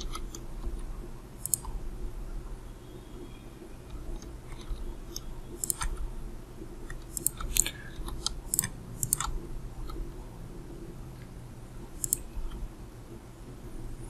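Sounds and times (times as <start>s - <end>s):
computer mouse clicking: 0.0s - 1.8s, 3.9s - 6.0s, 6.8s - 10.0s, 12.0s - 12.6s
low steady hum: 0.0s - 14.0s.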